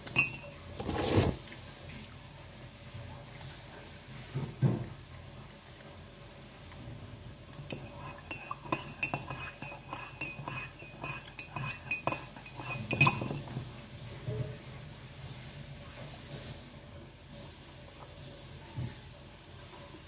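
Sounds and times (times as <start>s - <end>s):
metal utensil clinking on mug: 0.1s - 0.5s, 7.7s - 13.5s.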